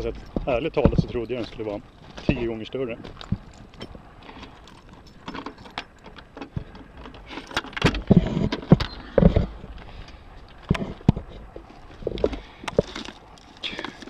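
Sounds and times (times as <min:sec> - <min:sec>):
loud thumps: 0:00.0 - 0:01.3
clicks rattles and knocks: 0:00.0 - 0:09.9.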